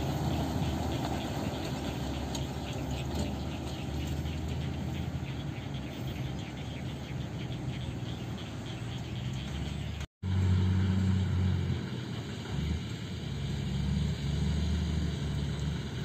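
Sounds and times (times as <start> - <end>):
diesel truck engine running: 0.0 - 16.0.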